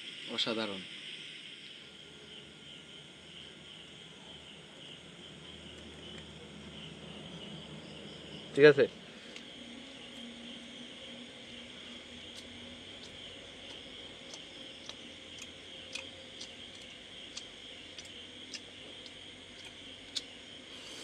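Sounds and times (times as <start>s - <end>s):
crickets chirping: 0.0s - 21.0s
sharp clicks: 12.3s - 20.3s.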